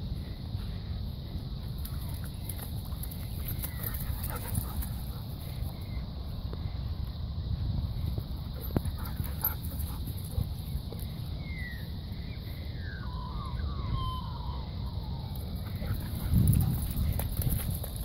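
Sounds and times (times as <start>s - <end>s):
steady low rumble: 14.8s - 18.0s.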